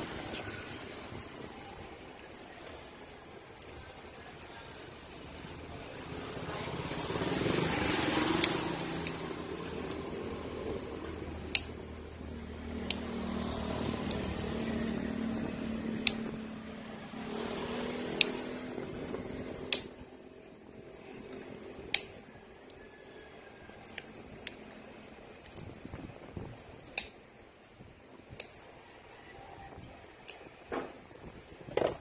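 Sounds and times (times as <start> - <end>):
sharp clicks from wires: 7.4 - 16.6, 18.0 - 22.8, 26.8 - 27.4, 30.2 - 30.7.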